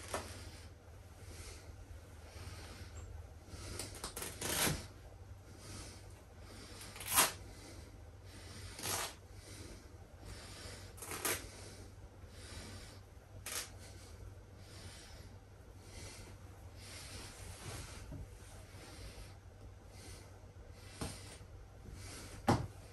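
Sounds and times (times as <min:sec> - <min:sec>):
fabric ripping: 0:03.8 - 0:04.9, 0:06.9 - 0:07.4, 0:08.8 - 0:09.2, 0:11.0 - 0:11.5, 0:13.5 - 0:13.7.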